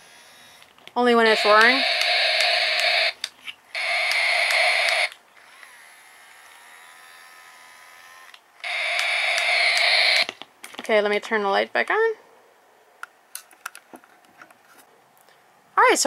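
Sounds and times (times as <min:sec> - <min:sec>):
robot toy electronic roar: 0:01.2 - 0:03.2, 0:03.8 - 0:10.3.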